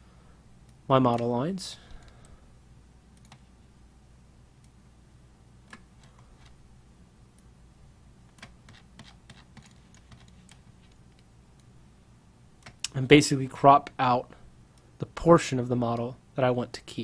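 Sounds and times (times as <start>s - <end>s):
low steady hum: 0.0s - 17.0s
computer mouse clicks: 3.1s - 3.5s, 8.3s - 11.7s, 12.6s - 13.0s.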